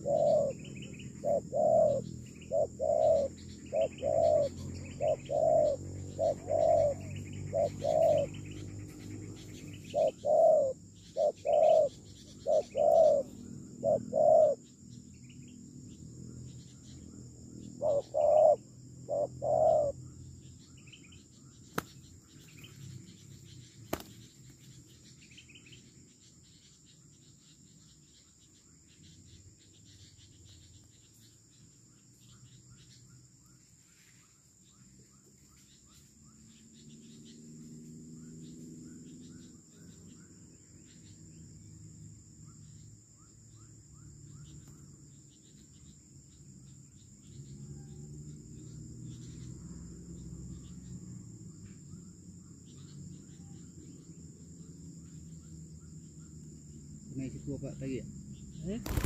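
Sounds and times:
doves cooing: 0:00.0 - 0:14.6, 0:17.7 - 0:20.0
high insect drone: 0:00.0 - 0:59.0.

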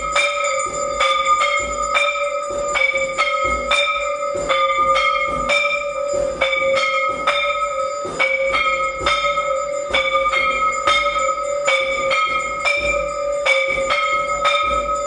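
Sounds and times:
temple bells ringing: 0:00.0 - 0:15.0.

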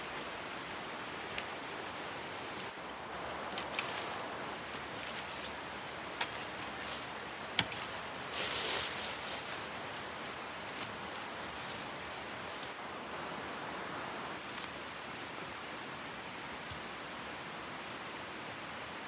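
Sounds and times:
outdoor hiss: 0:00.0 - 0:19.0
nylon fabric rustling: 0:03.7 - 0:05.6, 0:07.8 - 0:12.4.

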